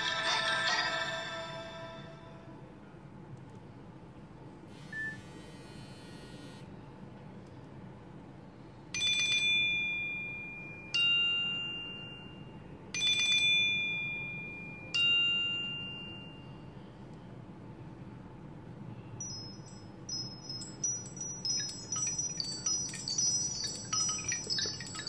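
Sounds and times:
phone ringtone: 9.0s - 16.6s, 19.2s - 25.0s.

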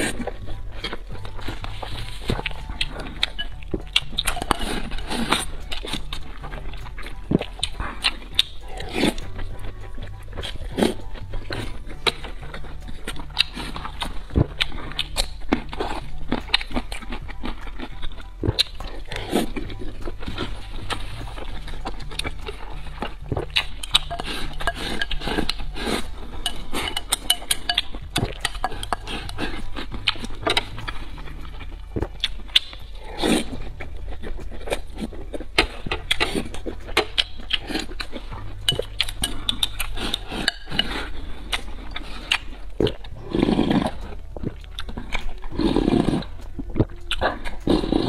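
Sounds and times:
lip smacks: 10.4s - 48.0s
person slurping sauce: 23.0s - 27.3s, 32.2s - 33.6s, 36.0s - 46.3s, 47.1s - 48.0s.

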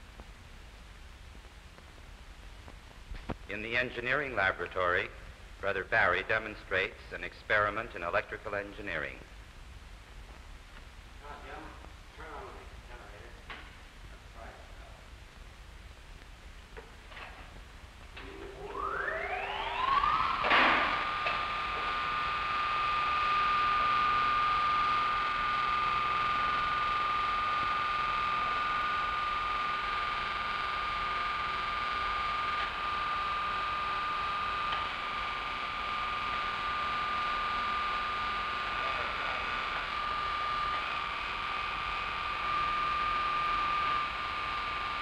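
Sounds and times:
constant hiss: 0.0s - 45.0s
high-pitched machine whine: 16.8s - 45.0s
steady high-pitched tone: 18.2s - 45.0s.

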